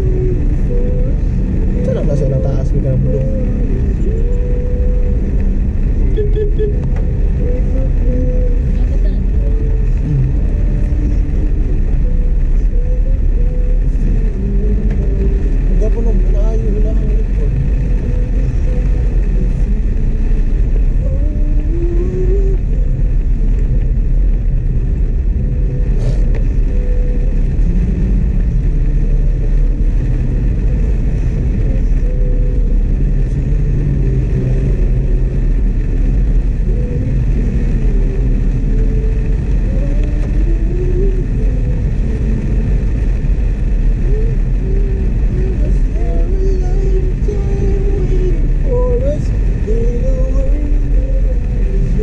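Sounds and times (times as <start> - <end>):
car engine rumble in cabin: 0.0 - 52.0
tyres hissing on wet road: 25.8 - 26.6.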